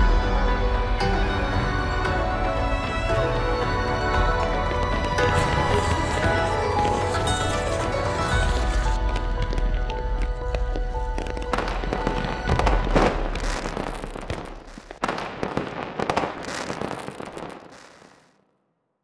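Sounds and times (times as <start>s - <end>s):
music: 0.0s - 14.7s
fireworks crackling and popping: 4.6s - 18.4s
firework bangs: 11.0s - 18.3s.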